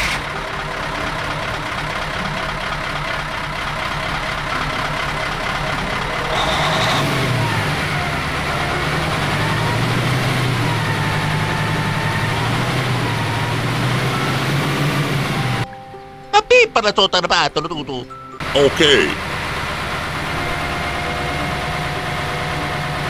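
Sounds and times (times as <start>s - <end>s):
truck engine running: 0.0s - 16.2s, 18.1s - 23.0s
wavering high tone: 5.7s - 23.0s.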